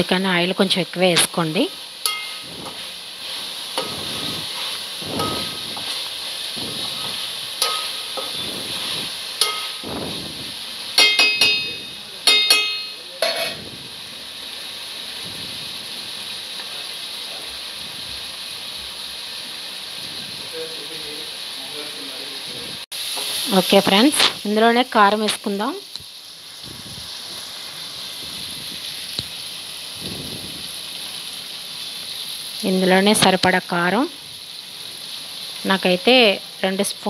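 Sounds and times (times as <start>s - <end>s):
vegetables sizzling in oil: 0.0s - 37.0s
spoon clinking against pot: 2.1s - 2.4s, 7.6s - 8.4s, 9.4s - 9.8s, 11.0s - 13.6s
metal spoon scraping pot: 6.8s - 9.8s.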